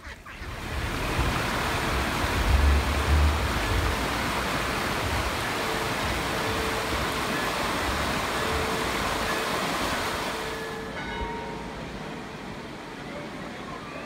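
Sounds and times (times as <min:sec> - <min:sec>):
water rushing over stones: 0:00.4 - 0:10.9.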